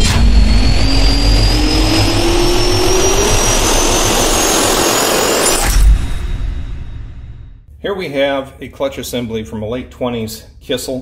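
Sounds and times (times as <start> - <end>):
jet turbine whine climbing: 0.0 - 7.6
low rumble and rushing noise: 0.0 - 7.7
sharp hit: 0.0 - 7.7.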